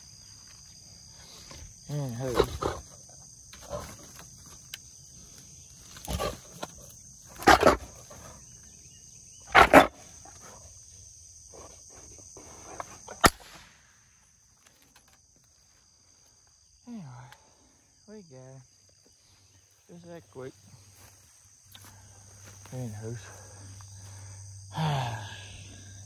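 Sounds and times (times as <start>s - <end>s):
insects droning: 0.0s - 26.0s
wild boar huffing: 1.1s - 4.1s, 6.0s - 8.6s, 9.4s - 10.7s
sharp click: 13.2s - 13.8s.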